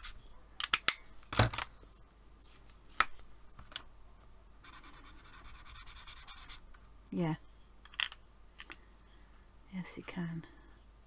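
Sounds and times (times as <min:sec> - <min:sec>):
marker scratching on paper: 0:04.6 - 0:06.6.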